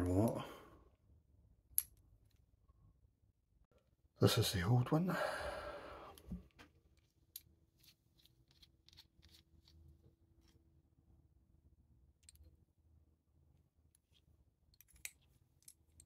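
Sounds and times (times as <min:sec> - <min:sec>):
light clicks of small metal parts: 0:13.9 - 0:16.0.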